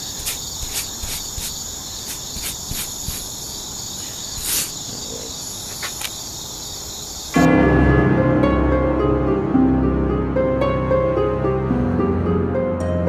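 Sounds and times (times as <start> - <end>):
cricket chirps: 0.0 - 7.4
crickets trilling: 0.0 - 7.4.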